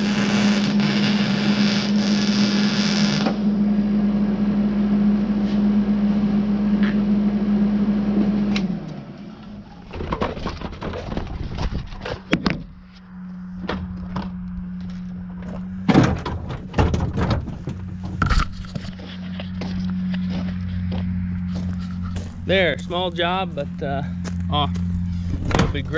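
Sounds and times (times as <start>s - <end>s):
welder arc buzzing: 0.0s - 3.6s
steady low hum: 0.0s - 25.9s.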